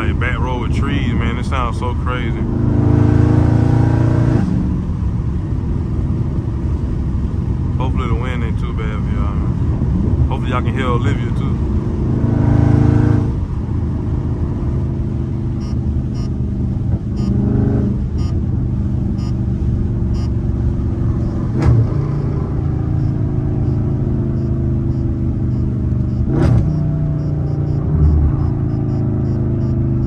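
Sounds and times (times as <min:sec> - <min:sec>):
car exhaust running loud: 0:00.0 - 0:30.0
sharp exhaust pops: 0:24.9 - 0:27.0.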